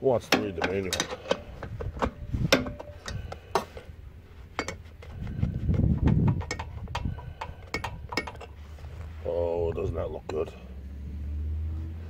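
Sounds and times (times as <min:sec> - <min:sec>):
ratcheting wrench clicks: 0:06.3 - 0:08.6.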